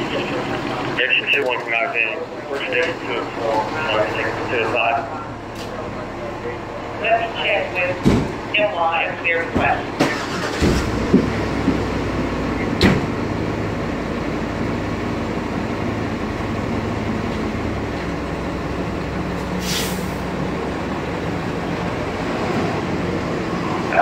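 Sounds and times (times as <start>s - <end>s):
diesel engine running: 0.0s - 24.0s
sharp clunk: 12.8s - 13.1s
air hiss: 19.6s - 20.3s.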